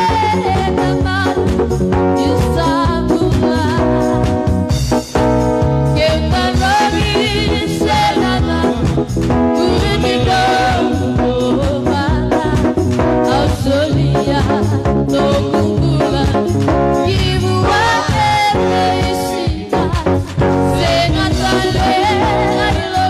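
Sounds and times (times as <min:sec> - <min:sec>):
person singing with vibrato: 0:00.0 - 0:04.4, 0:05.9 - 0:23.0
band with steady beat: 0:00.0 - 0:23.0.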